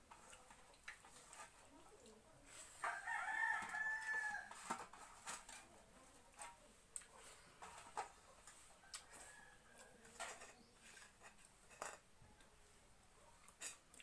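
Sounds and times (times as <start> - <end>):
rooster crowing: 2.8 - 4.6
clicks of eating from steel plate: 6.3 - 12.1.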